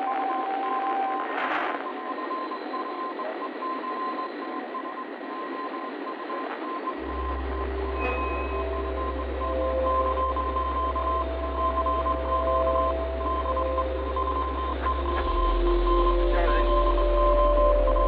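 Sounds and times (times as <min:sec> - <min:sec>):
static-like hiss: 0:00.0 - 0:18.0
deep low drone: 0:07.0 - 0:18.0
thin sustained tones: 0:07.0 - 0:18.0.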